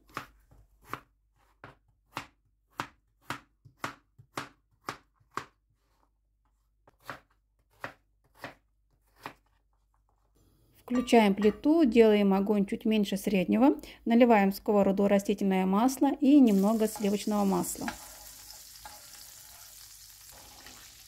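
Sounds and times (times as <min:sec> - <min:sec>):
knife chopping potato on cutting board: 0:00.0 - 0:09.6.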